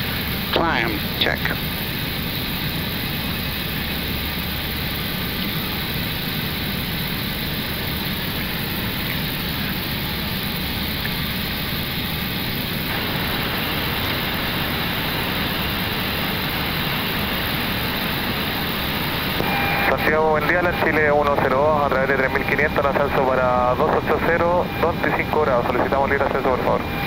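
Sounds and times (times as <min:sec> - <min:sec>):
airflow and engine noise in cockpit: 0:00.0 - 0:27.0.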